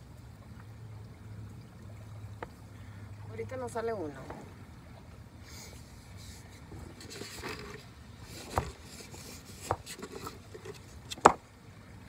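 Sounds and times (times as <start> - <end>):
sharp clicks in a kayak: 6.5 - 11.4.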